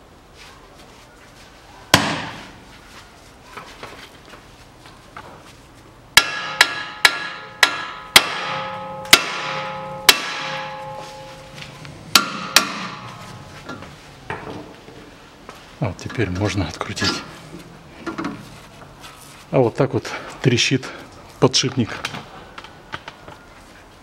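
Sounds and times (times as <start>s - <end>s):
hammer striking steel: 6.2s - 13.8s.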